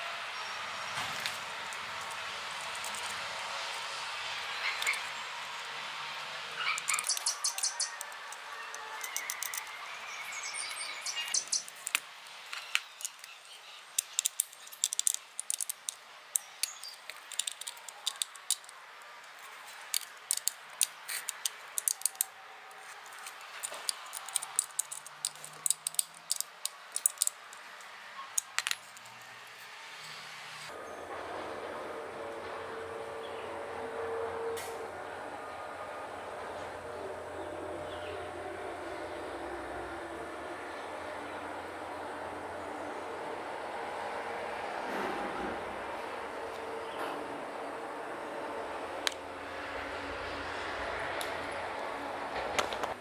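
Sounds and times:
faint steady background noise: 0.0s - 53.0s
clicks of small metal parts: 6.8s - 9.7s, 11.3s - 29.2s.

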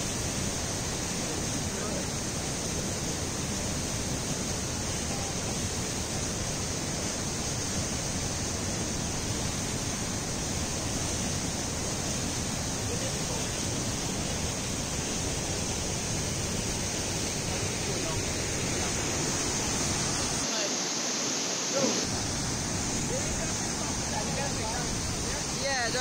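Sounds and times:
whitewater rushing over boulders: 0.0s - 26.0s.

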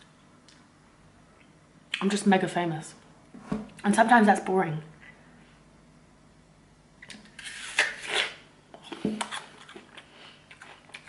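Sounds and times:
person crunching an apple: 7.0s - 11.0s.

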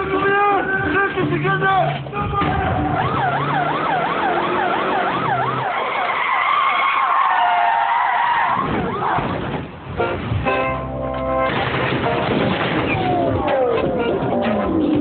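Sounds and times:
police siren wailing: 2.2s - 9.3s, 12.0s - 15.0s.

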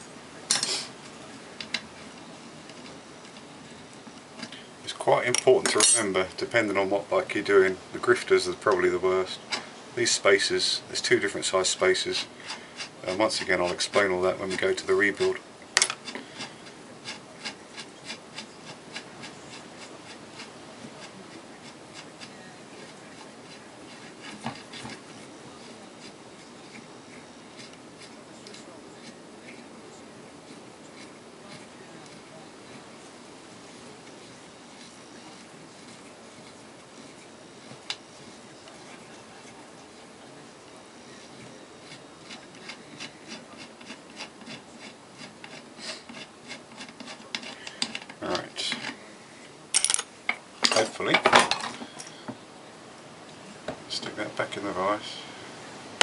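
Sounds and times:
metal threads grating: 9.2s - 29.7s, 41.2s - 49.0s.

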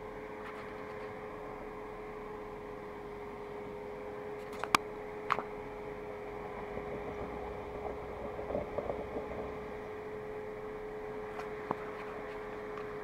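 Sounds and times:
steady mechanical hum: 0.0s - 13.0s
faint crackling: 6.4s - 12.9s.

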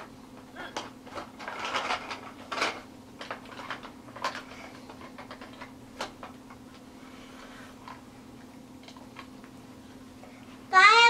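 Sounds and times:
plastic toys clattering: 0.7s - 6.3s.

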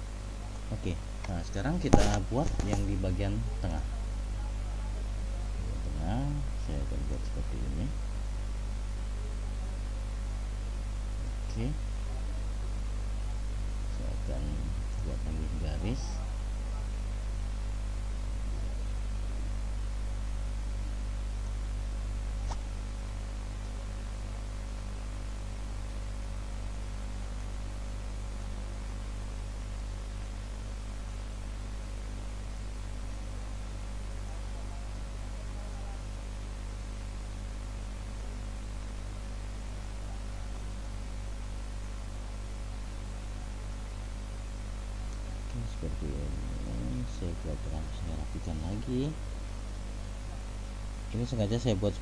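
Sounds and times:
electrical mains hum: 0.0s - 52.0s
recording hiss: 0.0s - 52.0s.

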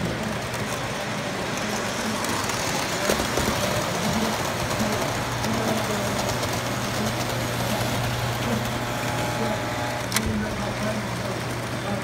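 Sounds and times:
toy trains running on track: 0.0s - 12.0s
electric hum: 6.7s - 11.2s.

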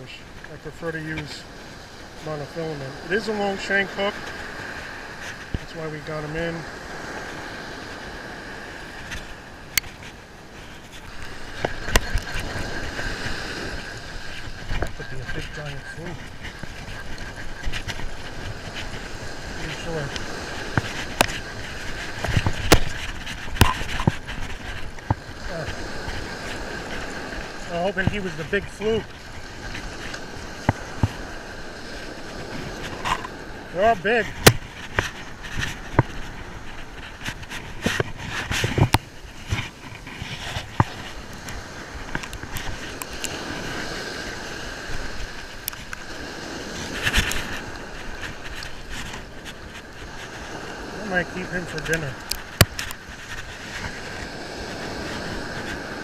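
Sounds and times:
surf washing on beach: 0.0s - 56.0s
wind on microphone: 1.0s - 56.0s
fishing rod and reel clicks: 10.8s - 28.2s, 34.3s - 43.6s, 51.7s - 55.9s.

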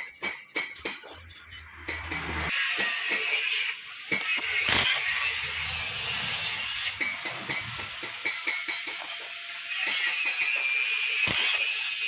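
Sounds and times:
small metallic clinks: 8.5s - 10.6s.

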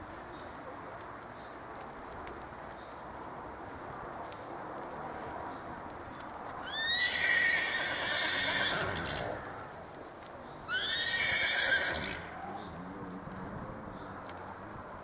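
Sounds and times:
horse whinnying: 6.7s - 9.5s, 10.7s - 12.4s.

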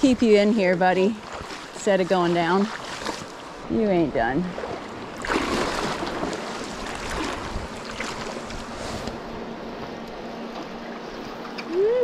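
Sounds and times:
wind buffeting microphone: 3.6s - 10.8s.

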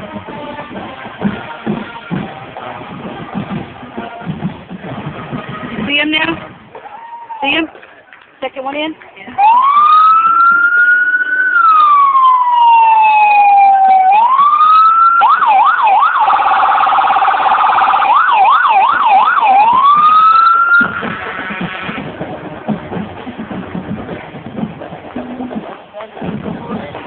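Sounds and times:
emergency siren wailing and yelping: 9.4s - 21.2s.

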